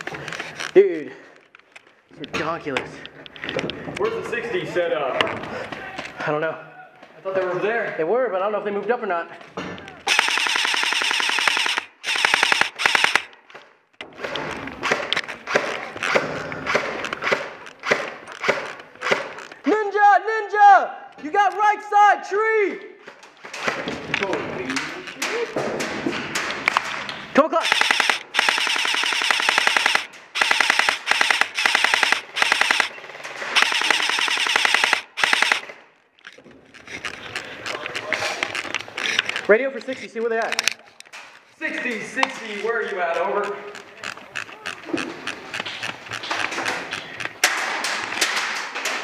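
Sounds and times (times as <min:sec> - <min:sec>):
airsoft rifle full-auto bursts: 0:10.1 - 0:13.4, 0:27.6 - 0:35.8.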